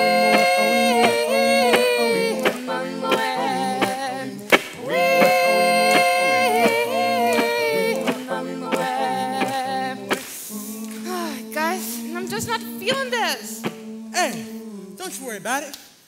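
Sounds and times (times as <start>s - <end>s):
backing music: 0.0s - 10.4s
person singing long notes: 0.0s - 15.2s.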